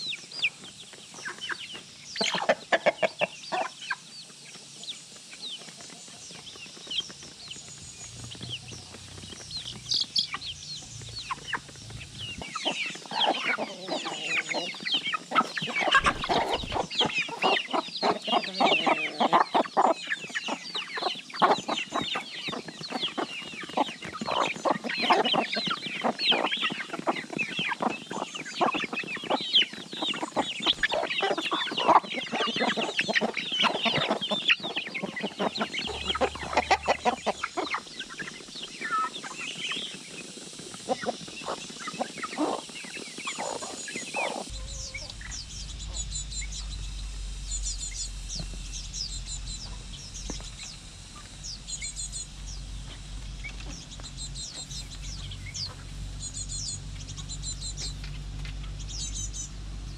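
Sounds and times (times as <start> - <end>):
chicks peeping: 0.0 - 59.9
hens clucking: 0.5 - 6.0, 6.6 - 56.0.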